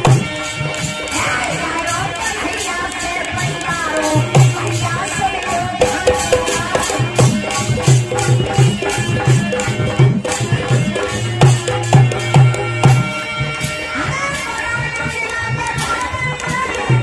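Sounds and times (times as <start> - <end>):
jingling percussion: 0.0 - 17.0
hand drum beating: 3.2 - 13.5.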